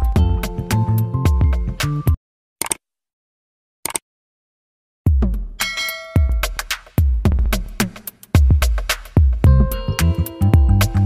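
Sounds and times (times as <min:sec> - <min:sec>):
electronic music with a beat: 0:00.0 - 0:02.2, 0:05.1 - 0:11.0
notification bell ding: 0:05.6 - 0:06.4.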